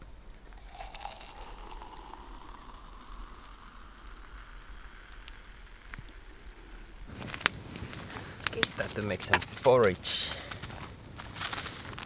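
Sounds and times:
hot water pouring into metal mug: 0.3 - 7.1.

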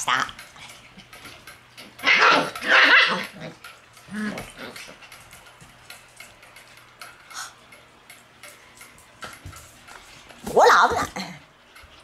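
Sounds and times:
puppy yapping: 2.0 - 3.4.

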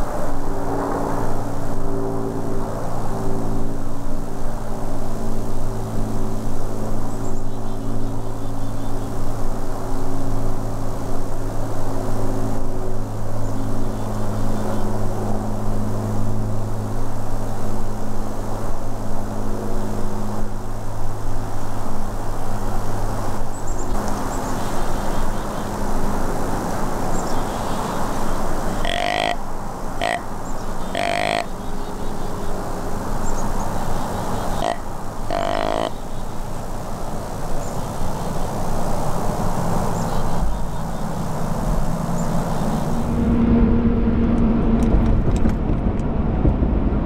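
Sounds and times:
low engine drone: 0.0 - 38.7, 41.1 - 47.0.

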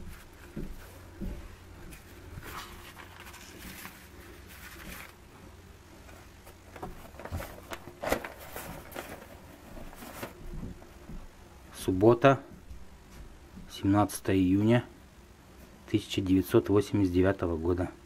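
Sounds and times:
newspaper rustling: 1.9 - 5.4, 6.0 - 11.2.

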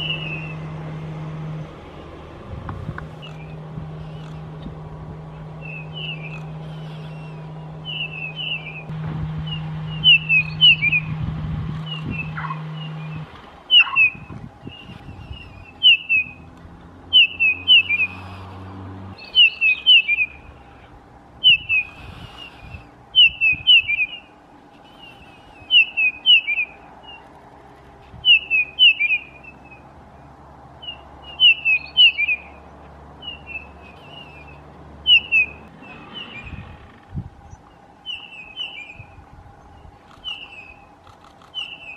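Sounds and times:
bullfinch whistled call notes: 11.9 - 16.4, 19.2 - 20.5, 28.2 - 29.8.

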